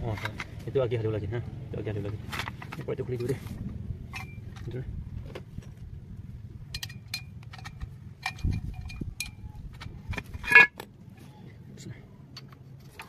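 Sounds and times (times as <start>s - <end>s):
metal clicks and clinks: 6.6s - 10.8s.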